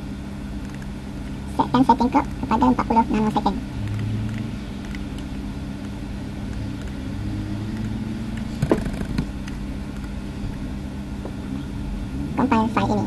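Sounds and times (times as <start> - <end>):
low mechanical hum: 0.0 - 13.0
low rumble: 2.2 - 12.6.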